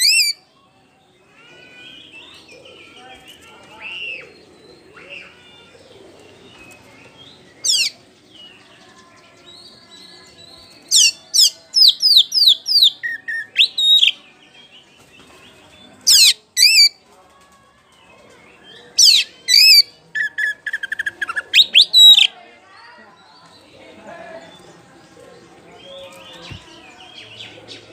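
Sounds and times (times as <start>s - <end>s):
magpie-robin singing whistles: 10.9s - 14.2s.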